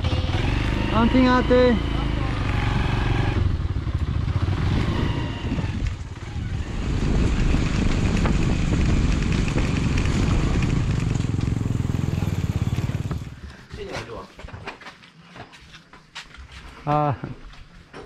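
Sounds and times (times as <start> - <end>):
motorcycle engine running: 0.0 - 13.6.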